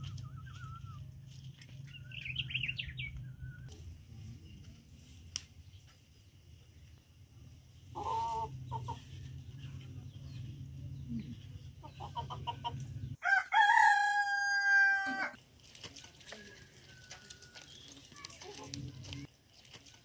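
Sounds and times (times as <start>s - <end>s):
chicken clucking: 8.0s - 9.7s, 11.5s - 13.1s
rooster crowing: 13.2s - 15.4s, 16.5s - 17.7s.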